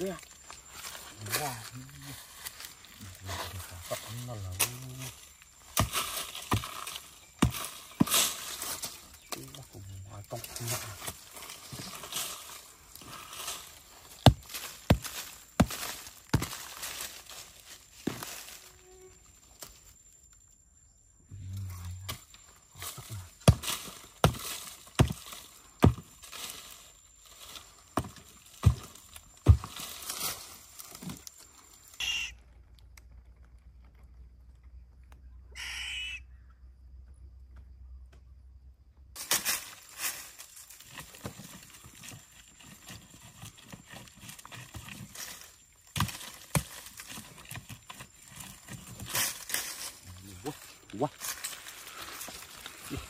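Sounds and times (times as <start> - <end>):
digging tool striking dry earth: 3.3 - 9.6, 10.4 - 17.3, 18.0 - 18.4, 21.9 - 26.8, 27.5 - 31.2, 39.2 - 53.0
short high calls: 31.9 - 32.5, 35.5 - 36.5.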